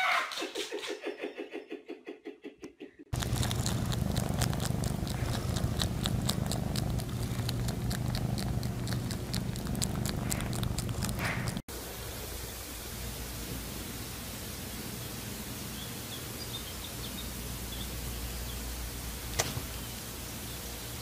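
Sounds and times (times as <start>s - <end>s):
cat purring: 3.1s - 11.7s
cat tongue licking clicks: 3.2s - 11.6s.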